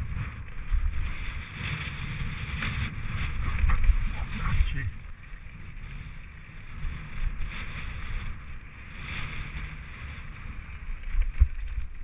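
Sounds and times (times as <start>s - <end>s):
bike tyres crunching on gravel: 0.0s - 12.0s
wind rumble on microphone: 0.0s - 12.0s.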